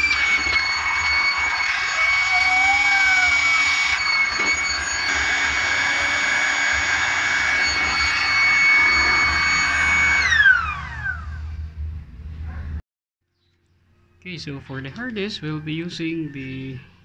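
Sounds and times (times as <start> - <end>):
electric blower whining: 0.0 - 11.6.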